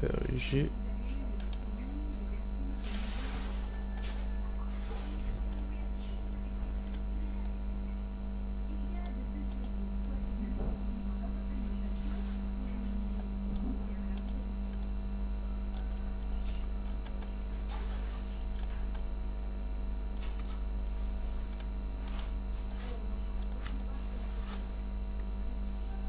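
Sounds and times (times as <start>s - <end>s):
electrical mains hum: 0.0s - 26.0s
faint clicks: 1.4s - 1.7s.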